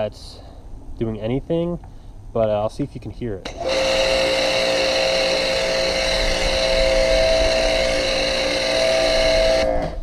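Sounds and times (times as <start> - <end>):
pressure washer motor whine: 3.5 - 10.0.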